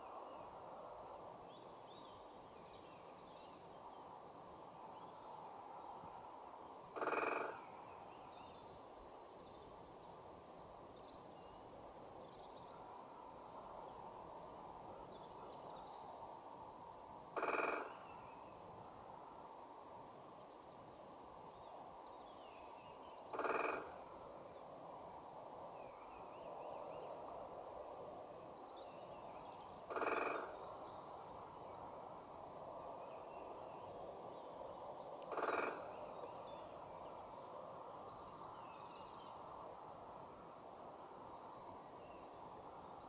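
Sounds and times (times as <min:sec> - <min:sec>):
woodpecker drumming on tree trunk: 0:06.9 - 0:07.6, 0:17.4 - 0:18.0, 0:23.3 - 0:24.0, 0:29.9 - 0:30.6, 0:35.3 - 0:35.9.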